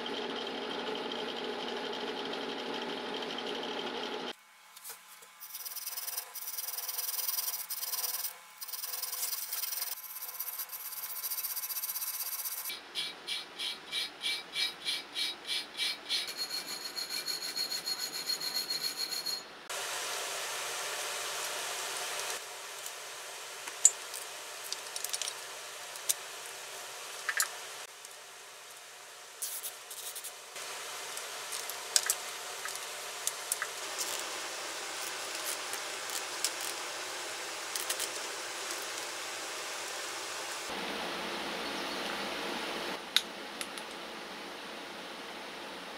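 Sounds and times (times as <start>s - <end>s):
wire brush scrubbing metal: 5.4s - 19.4s.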